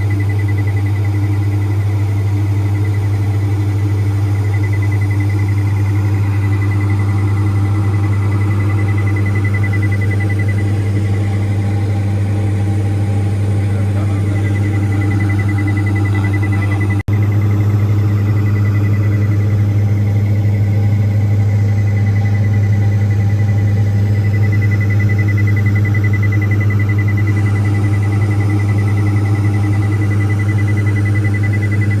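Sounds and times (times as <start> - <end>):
aircraft engine and propeller drone: 0.0 - 32.0
thin high tone: 4.3 - 21.3.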